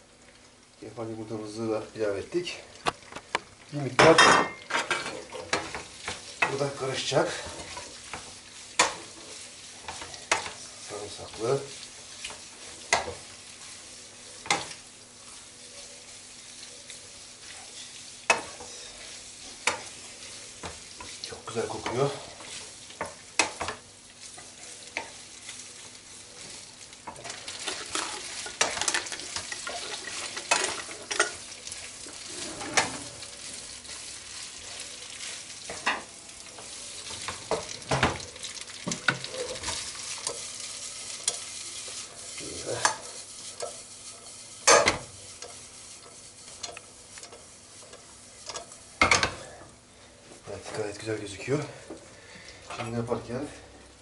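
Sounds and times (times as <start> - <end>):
pasta sizzling in pan: 0.0 - 54.0
spatula scraping and knocking pan: 17.6 - 25.2, 32.1 - 33.2, 38.8 - 49.4.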